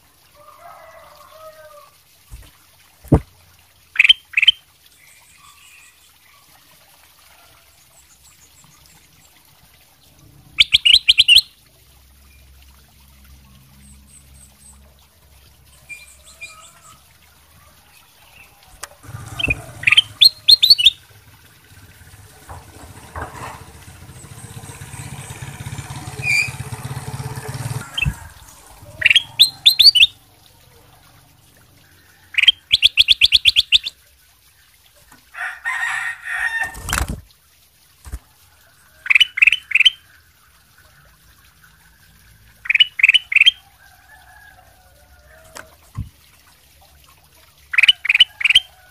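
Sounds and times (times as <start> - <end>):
bird singing sharp notes: 19.4 - 21.0.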